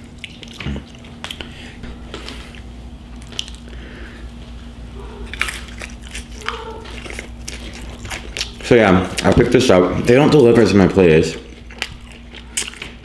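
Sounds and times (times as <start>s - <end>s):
wet chewing and biting: 0.0s - 3.8s, 5.1s - 10.7s, 11.3s - 13.0s
crunching crisp food: 0.0s - 3.9s, 5.2s - 13.0s
steady low hum: 0.0s - 13.0s.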